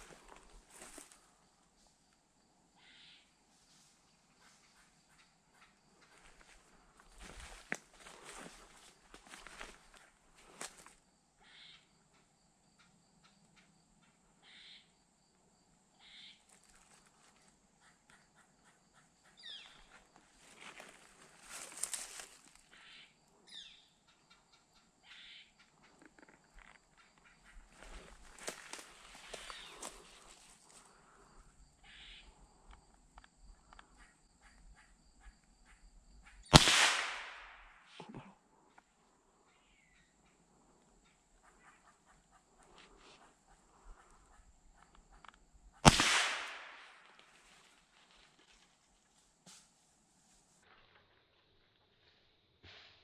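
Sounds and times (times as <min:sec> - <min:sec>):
faint scattered calls: 0:04.2 - 0:10.8, 0:11.4 - 0:15.0, 0:16.0 - 0:36.6, 0:38.6 - 0:45.9
faint ticks: 0:32.6 - 0:34.6
gunshot: 0:36.5 - 0:37.7, 0:45.8 - 0:47.0.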